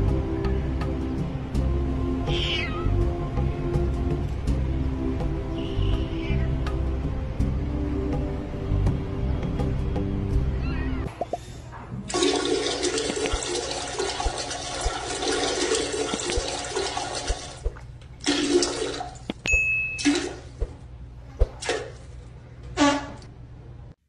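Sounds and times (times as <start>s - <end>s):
gurgling water refilling bowl: 12.1s - 19.3s
toilet flushing: 12.1s - 19.3s, 20.0s - 20.7s.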